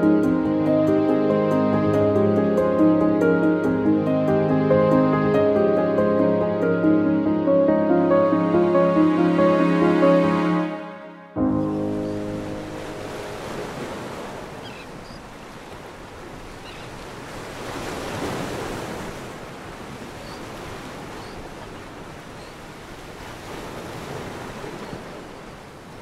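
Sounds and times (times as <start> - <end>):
wind: 11.4 - 26.0
waves breaking on a beach: 11.8 - 26.0.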